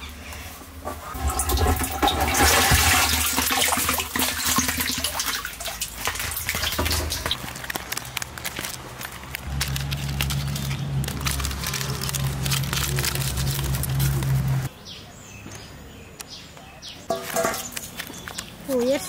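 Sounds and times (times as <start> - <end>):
water sloshing in plastic drum: 0.9 - 7.4.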